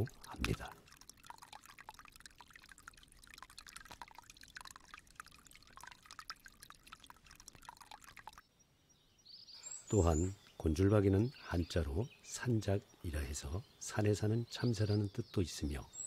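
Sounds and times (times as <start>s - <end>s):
bird splashing in water: 0.0s - 8.4s
droplets pattering on water and rock: 0.0s - 8.5s.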